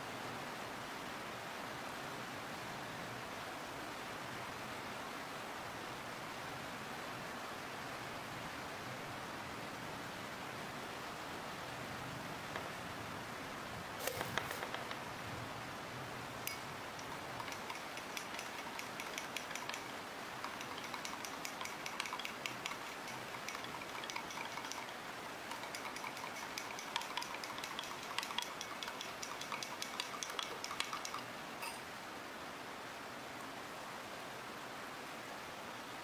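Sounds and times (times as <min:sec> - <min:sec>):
steady hiss: 0:00.0 - 0:36.0
small irregular clicks: 0:14.0 - 0:15.1, 0:16.4 - 0:31.3.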